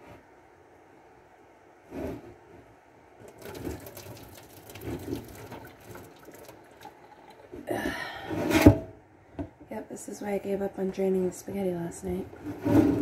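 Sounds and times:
water gush: 3.2 - 7.6
hot water pouring into sink: 3.2 - 7.7.

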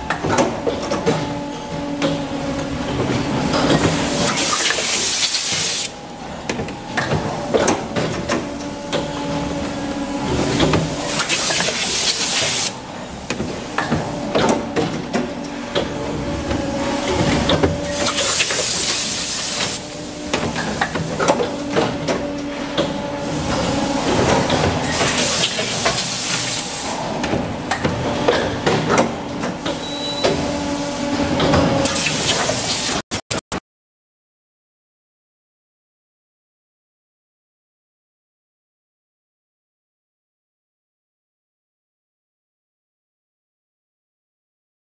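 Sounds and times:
machine clanks and knocks: 0.0 - 4.6, 6.4 - 9.4, 10.3 - 19.4, 20.2 - 26.5, 27.1 - 30.6
machine hum: 0.0 - 32.7.

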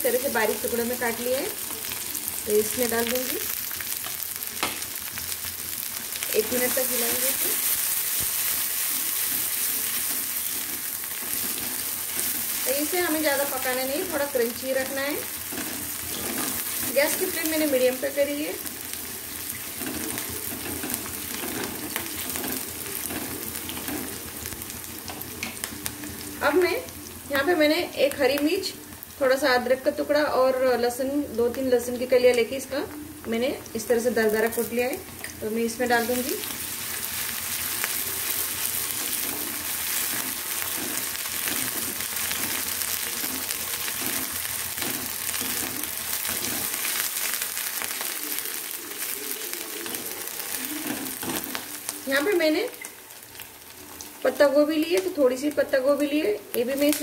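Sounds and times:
vegetables sizzling in oil: 0.0 - 57.0
wooden spatula scraping pan: 38.8 - 46.9.

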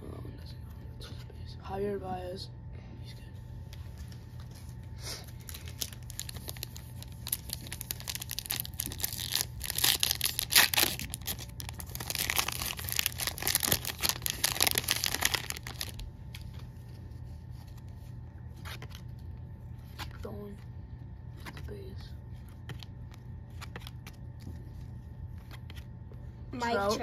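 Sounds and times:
foil wrapper tearing and crinkling: 5.3 - 16.6.

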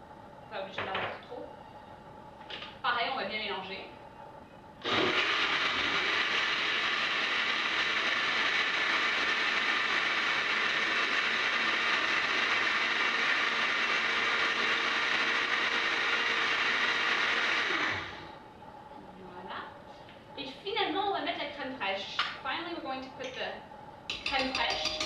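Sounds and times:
blender running: 4.8 - 18.2.

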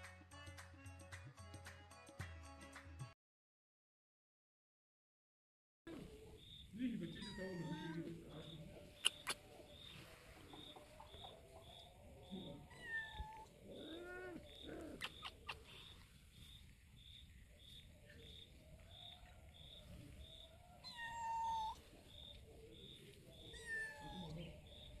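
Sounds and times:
faint steady chirping: 6.0 - 25.0
cats meowing: 7.0 - 9.4, 11.1 - 16.0, 20.3 - 25.0.

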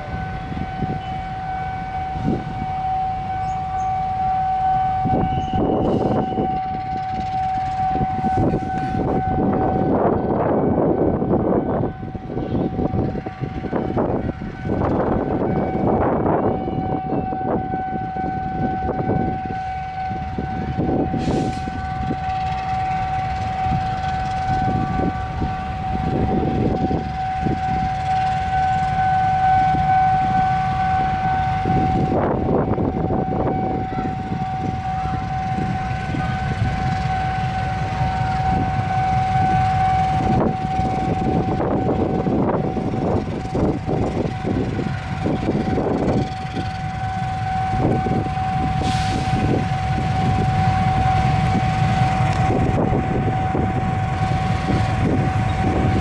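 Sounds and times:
locomotive engine under load: 17.6 - 56.0.

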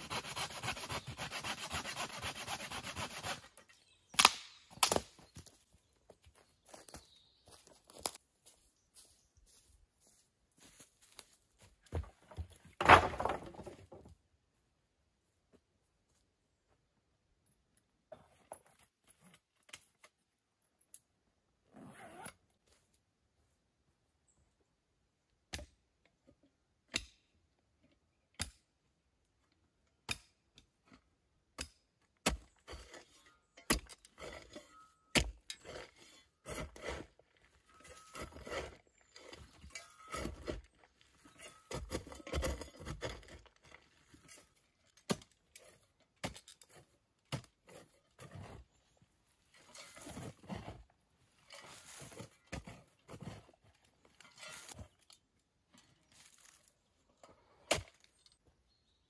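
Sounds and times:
shovel scraping and crunching soil: 0.0 - 5.5, 32.3 - 58.3.

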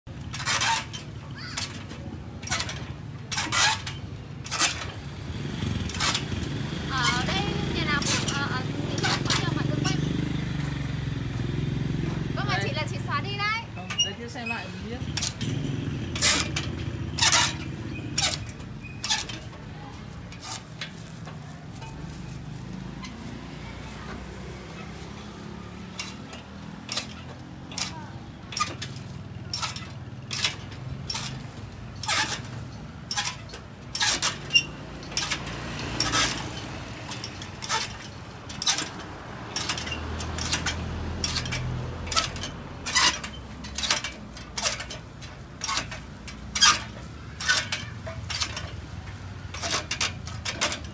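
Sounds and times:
blade chopping sugarcane: 5.8 - 10.1, 15.1 - 19.7, 34.0 - 48.9.

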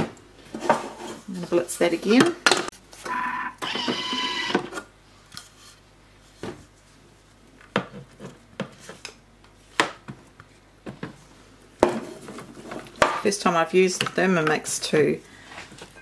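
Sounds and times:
kitchen appliance whirring: 3.0 - 4.8.

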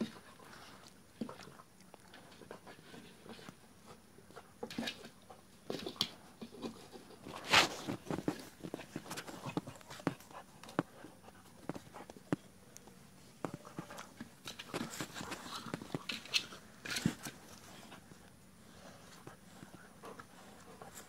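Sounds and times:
rustling and scuffing: 5.7 - 12.3, 13.3 - 18.0.

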